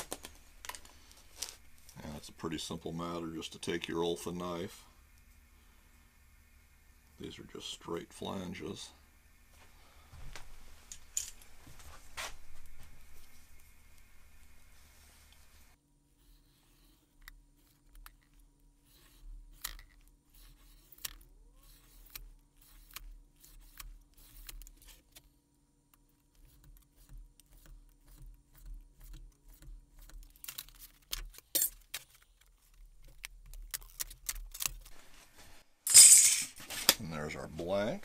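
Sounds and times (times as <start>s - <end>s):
knife scratching metal sheet: 20.3s - 24.6s.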